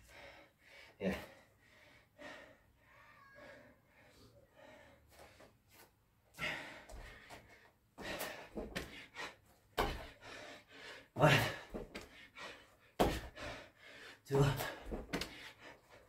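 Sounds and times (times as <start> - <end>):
man gasping breaths: 6.3 - 16.0
man grunting: 11.2 - 11.8, 14.3 - 14.9.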